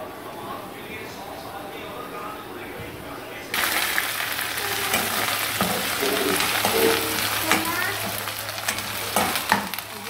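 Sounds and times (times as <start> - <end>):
onions sizzling in hot oil: 3.5 - 10.0
spatula scraping a pan: 4.8 - 9.8.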